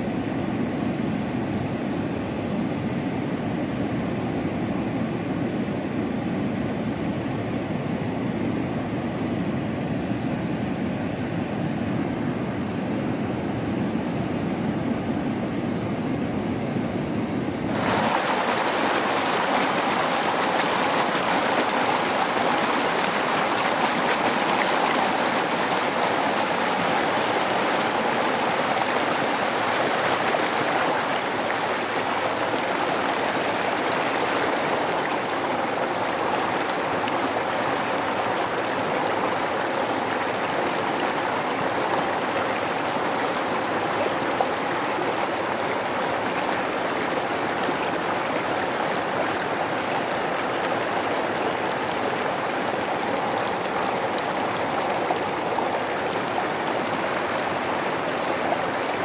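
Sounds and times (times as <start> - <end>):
river flowing over rocks: 17.6 - 59.0.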